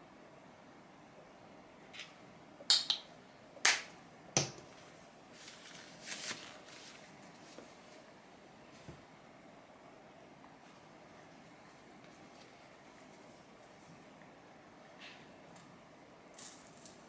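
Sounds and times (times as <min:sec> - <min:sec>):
fabric rustling: 0:04.7 - 0:09.0.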